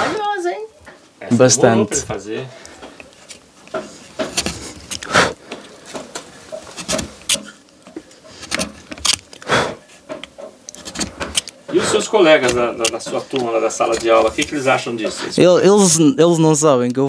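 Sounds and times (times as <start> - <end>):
knife scraping wood: 3.0 - 15.4.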